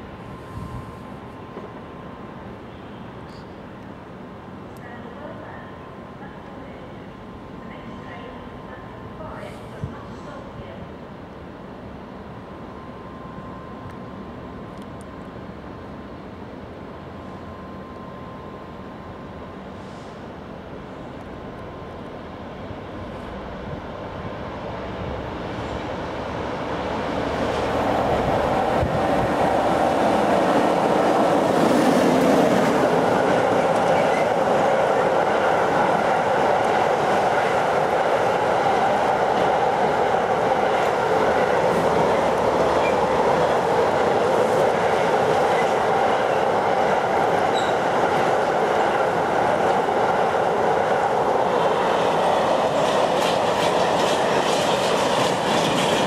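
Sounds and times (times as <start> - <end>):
electric locomotive passing: 0.0 - 56.0
train wagons rolling by: 24.6 - 56.0.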